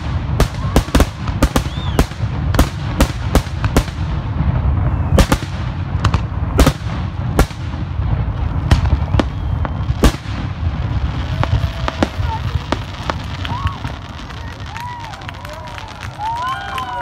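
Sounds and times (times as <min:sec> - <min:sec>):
fireworks bangs: 0:00.0 - 0:17.0.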